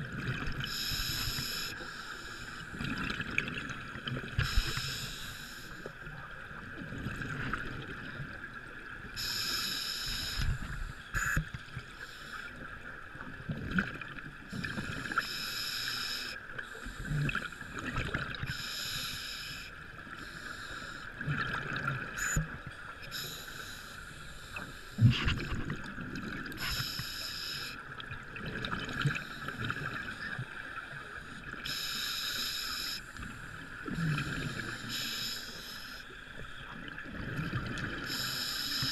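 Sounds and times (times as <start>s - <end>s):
exhaled bubbles underwater: 0.0s - 1.4s, 2.7s - 4.8s, 5.9s - 8.9s, 12.6s - 15.2s, 16.9s - 18.5s, 21.1s - 22.7s, 24.6s - 26.8s, 27.9s - 31.6s, 33.5s - 35.0s, 36.3s - 38.3s
regulator hiss: 0.7s - 2.6s, 4.4s - 5.8s, 9.2s - 11.4s, 15.2s - 16.4s, 18.5s - 21.0s, 23.1s - 25.0s, 26.6s - 27.8s, 31.6s - 33.1s, 34.5s - 36.1s, 38.1s - 38.9s.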